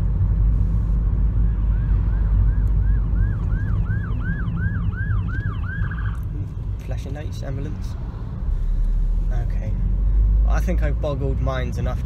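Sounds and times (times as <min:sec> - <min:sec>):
car engine rumble: 0:00.0 - 0:12.0
road noise: 0:00.0 - 0:12.0
ambulance siren wailing: 0:01.4 - 0:06.3.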